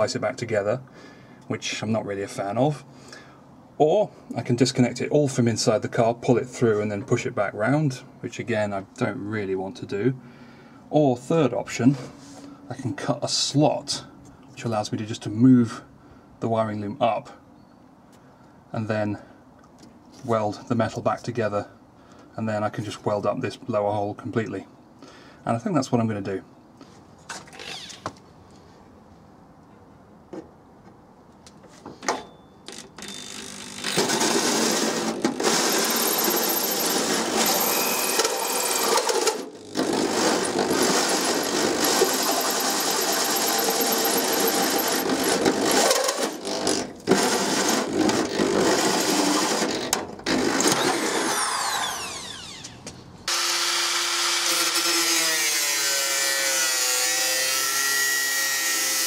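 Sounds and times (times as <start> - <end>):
power tool cutting steel sheet: 33.0 - 59.0.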